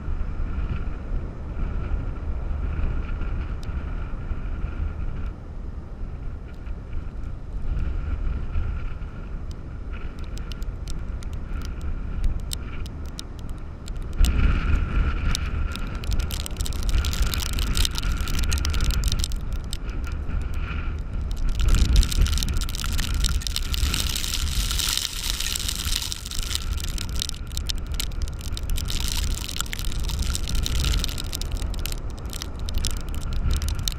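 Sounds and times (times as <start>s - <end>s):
gusty wind buffeting microphone: 0.0s - 33.9s
blowing sand ticking: 9.5s - 33.9s
heavy surf: 10.0s - 33.9s.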